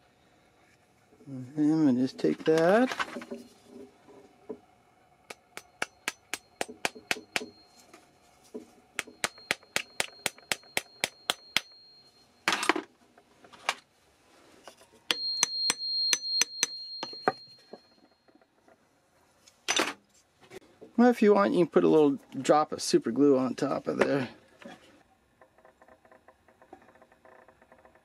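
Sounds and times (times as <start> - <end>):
hammer tapping a pin punch: 5.3 - 7.6, 9.0 - 11.8, 15.1 - 17.8.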